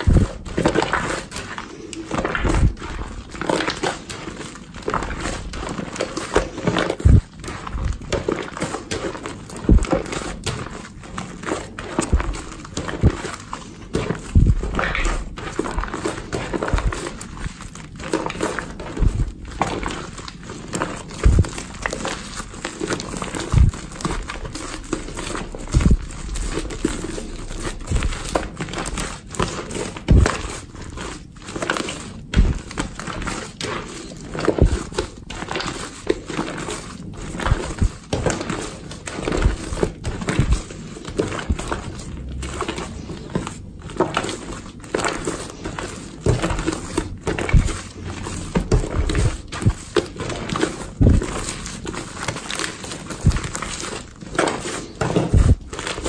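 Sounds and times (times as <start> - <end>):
slime squelching and crackling: 0.0 - 56.0
soft low thumps: 21.2 - 21.6, 23.5 - 23.9.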